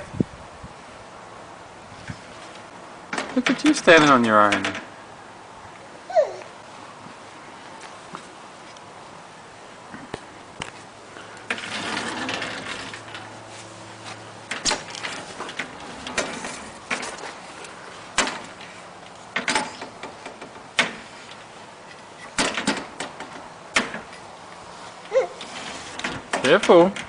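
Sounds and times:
glass door knocking and rattling: 0:03.1 - 0:04.9, 0:11.5 - 0:13.2, 0:14.5 - 0:17.2, 0:18.2 - 0:18.7, 0:22.4 - 0:24.1, 0:25.4 - 0:27.0.

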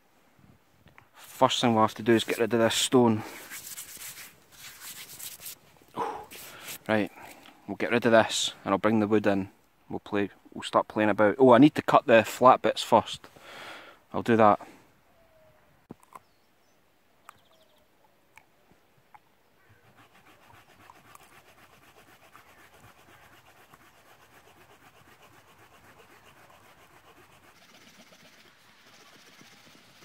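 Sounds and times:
hand saw cutting wood: 0:19.9 - 0:30.0.

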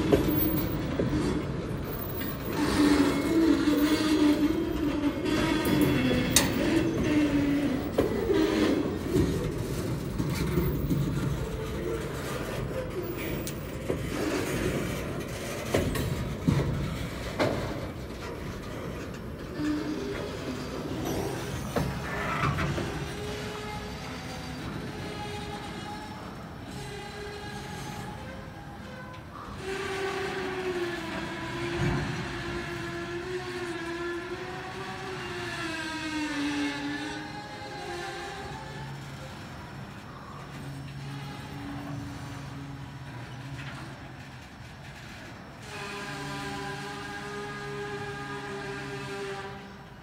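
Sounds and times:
wheel clicks over rail joints: 0:00.0 - 0:30.6
freight train rolling past: 0:00.0 - 0:50.0.

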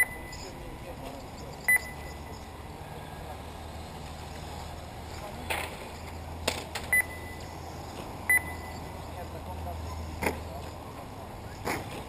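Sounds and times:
short high electronic beep: 0:00.0 - 0:00.4, 0:01.6 - 0:02.5, 0:08.3 - 0:08.9.

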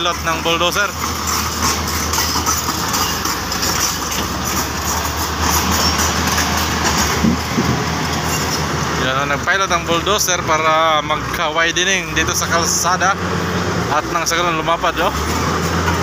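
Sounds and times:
steel tracks clattering: 0:00.0 - 0:13.2
bulldozer diesel engine under load: 0:00.0 - 0:16.0.

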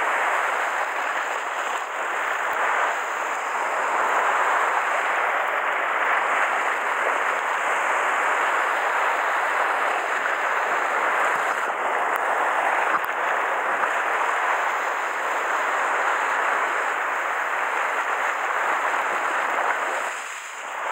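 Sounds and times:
surf washing against rocks: 0:00.0 - 0:20.9.

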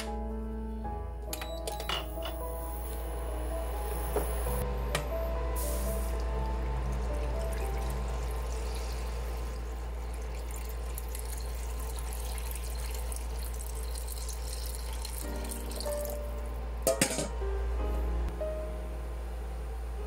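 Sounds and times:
water pouring into a pan: 0:06.1 - 0:16.2.

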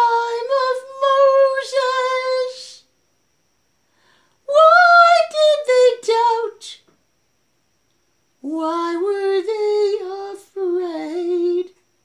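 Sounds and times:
woman singing unaccompanied: 0:00.0 - 0:02.9, 0:04.4 - 0:06.9, 0:08.4 - 0:11.8.

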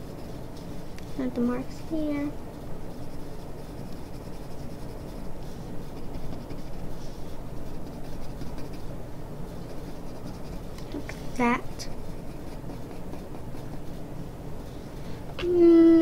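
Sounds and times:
pencil scratching on paper: 0:00.0 - 0:14.8
steady low hum: 0:00.0 - 0:16.0.

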